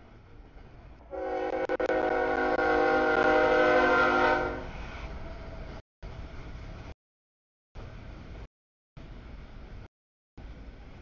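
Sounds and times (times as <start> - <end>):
locomotive air horn blast: 1.1 - 4.8.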